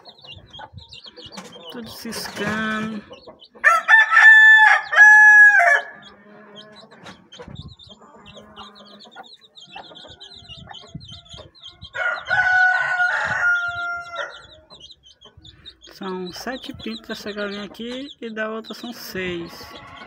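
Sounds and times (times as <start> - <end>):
chicks peeping faintly: 0.0 - 20.0
rooster crowing: 3.6 - 6.2, 11.9 - 14.6.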